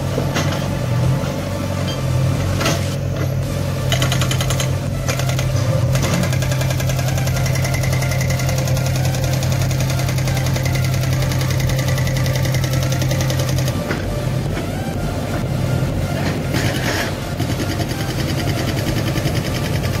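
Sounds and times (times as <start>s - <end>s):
diesel engine running under load: 0.0s - 20.0s.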